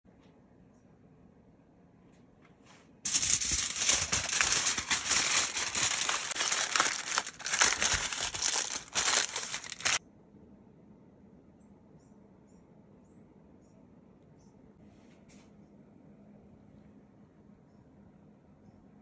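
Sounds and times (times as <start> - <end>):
aluminium foil crinkling: 3.1 - 10.0.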